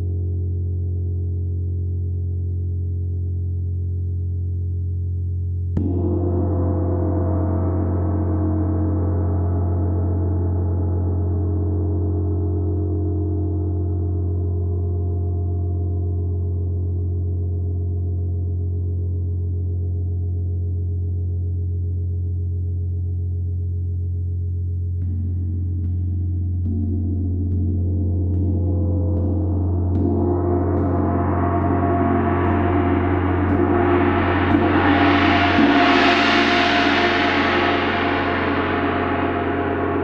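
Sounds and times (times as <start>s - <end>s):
deep gong hum: 5.8s - 17.8s, 25.0s - 40.0s
gong struck with mallet: 26.6s - 40.0s.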